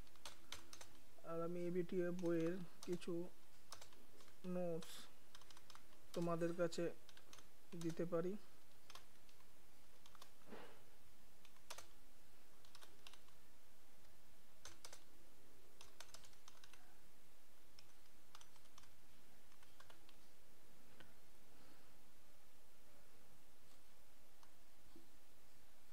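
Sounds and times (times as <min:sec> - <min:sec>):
keyboard keystrokes clicking: 0:00.0 - 0:01.0, 0:03.7 - 0:04.6, 0:05.3 - 0:06.4, 0:07.1 - 0:08.1, 0:11.4 - 0:11.9, 0:12.6 - 0:13.4, 0:14.6 - 0:15.1, 0:15.8 - 0:16.8, 0:17.8 - 0:18.9.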